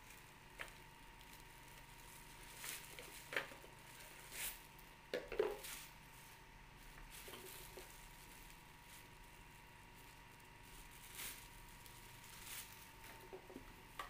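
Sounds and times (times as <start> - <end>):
plastic wrap crinkling: 0.0 - 14.0.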